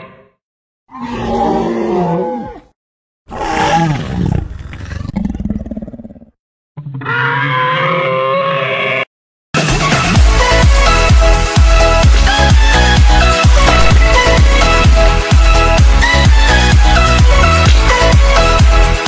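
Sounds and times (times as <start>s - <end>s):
dinosaur roars: 0.9s - 2.7s, 3.3s - 9.0s.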